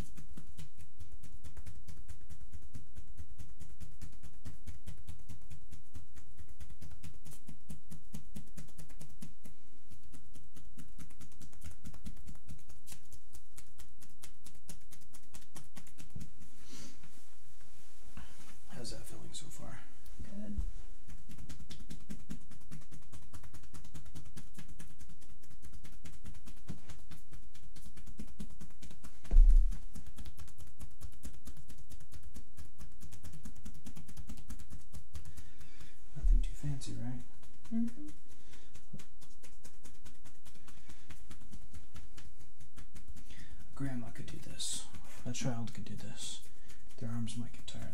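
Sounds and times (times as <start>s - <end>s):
hands patting on bare skin: 0.0s - 47.9s
low thump: 29.3s - 29.7s.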